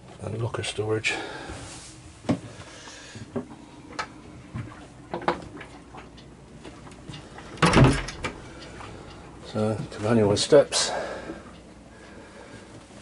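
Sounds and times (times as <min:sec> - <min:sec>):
light knocks and clicks in wooden cabin: 0:02.2 - 0:10.1.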